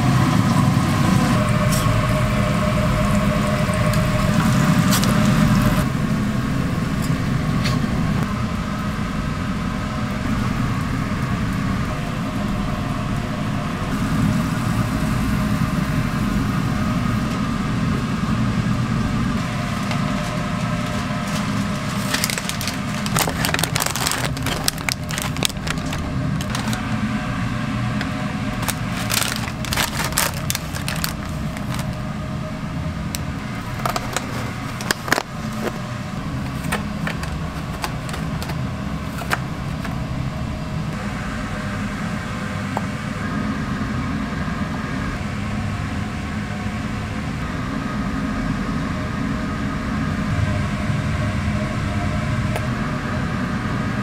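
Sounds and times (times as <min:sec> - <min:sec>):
kitchen hum: 0:00.0 - 0:48.3
paper wrappers crinkling: 0:19.4 - 0:26.9, 0:28.5 - 0:32.1, 0:33.6 - 0:40.0.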